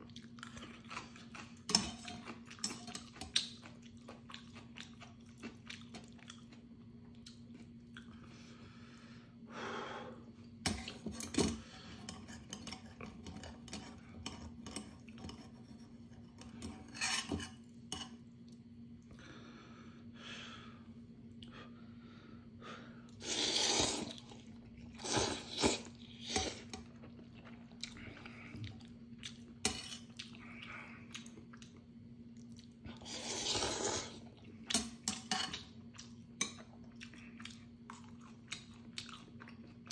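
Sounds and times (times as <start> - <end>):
chewing: 0.0 - 8.3, 23.8 - 39.9
faint steady hum: 0.0 - 39.9
noodles slurped: 23.2 - 26.7, 32.9 - 34.2.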